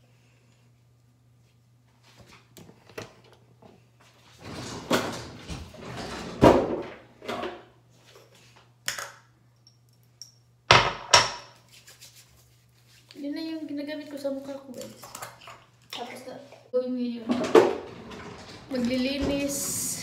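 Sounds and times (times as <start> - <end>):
rustling and clattering: 17.3 - 19.9.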